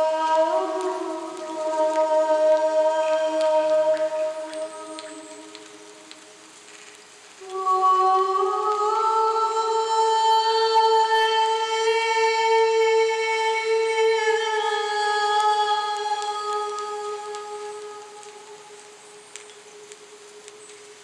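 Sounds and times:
woman singing sustained note: 0:00.0 - 0:06.4, 0:07.4 - 0:19.3.

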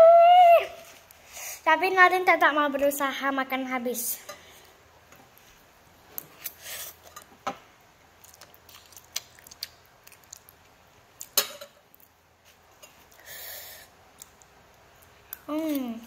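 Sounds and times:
cutlery clinking on ceramic plate: 0:11.4 - 0:11.8.

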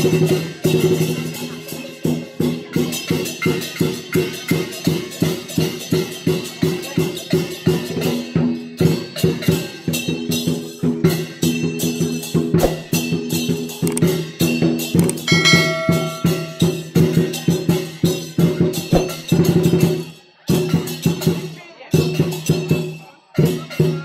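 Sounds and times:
drum beaten in fast rhythm: 0:15.0 - 0:22.8
held pitched tone: 0:15.1 - 0:16.8
cymbals crashing: 0:15.3 - 0:16.9.

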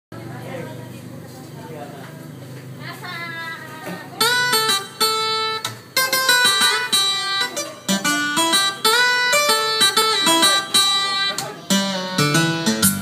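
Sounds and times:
plucked guitar notes: 0:04.0 - 0:13.0.

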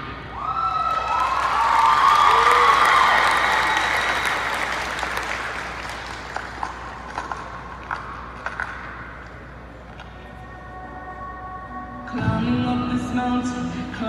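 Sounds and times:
audience applause and cheering: 0:00.3 - 0:08.8.

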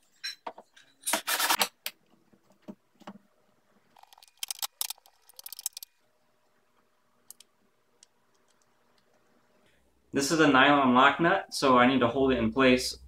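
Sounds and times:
metallic clicks and rattles: 0:04.0 - 0:06.0.

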